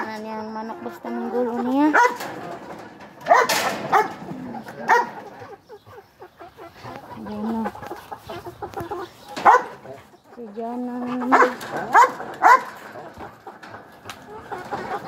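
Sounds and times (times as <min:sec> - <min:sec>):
dogs yelping: 0:01.7 - 0:02.5, 0:03.2 - 0:07.2, 0:08.3 - 0:10.2, 0:11.2 - 0:13.6.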